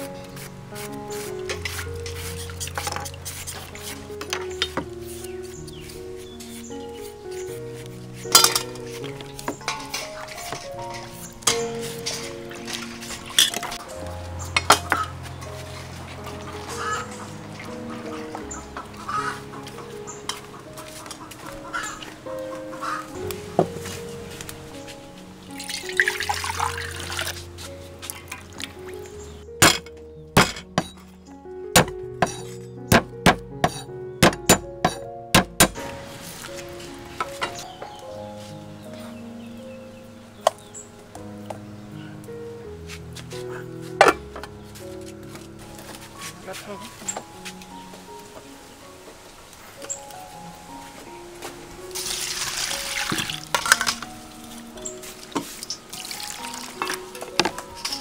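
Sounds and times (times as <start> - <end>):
soft background music: 0.0 - 58.0
water pouring into a strainer: 25.6 - 27.4, 52.0 - 53.8, 55.6 - 56.9
cleaver chopping on wooden block: 31.8 - 35.8
knocks against metal: 31.8 - 35.8.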